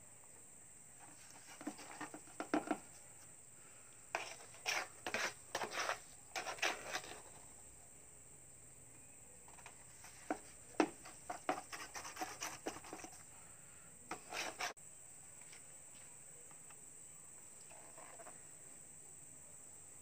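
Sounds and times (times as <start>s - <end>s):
trowel scraping mortar in bucket: 1.0s - 2.9s, 4.2s - 7.4s, 14.1s - 14.8s.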